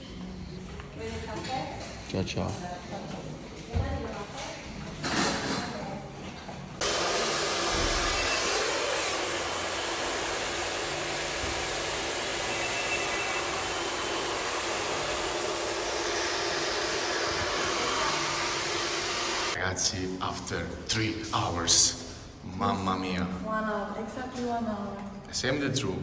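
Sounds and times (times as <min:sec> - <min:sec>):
hair dryer running: 0:06.8 - 0:19.6.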